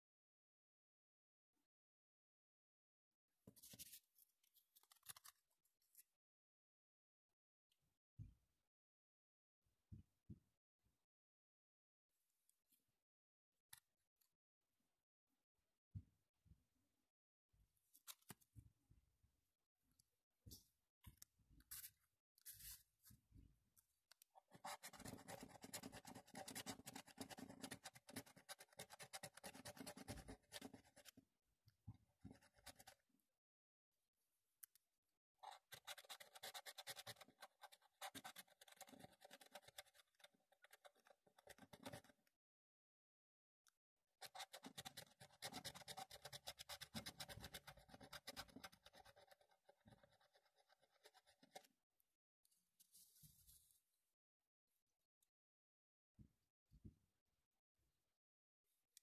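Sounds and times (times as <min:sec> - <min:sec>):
scratch card scraping: 0:35.4 - 0:42.1.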